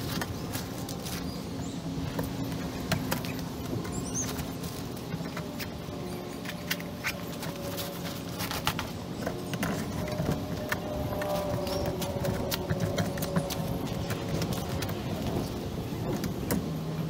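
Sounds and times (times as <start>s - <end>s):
gear clicking and rustling: 0.0s - 17.0s.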